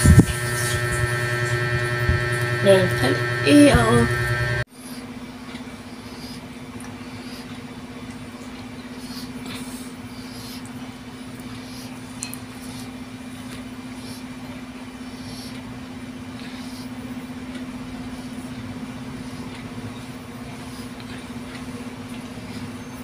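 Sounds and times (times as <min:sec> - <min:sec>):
low hum: 0:00.0 - 0:04.7.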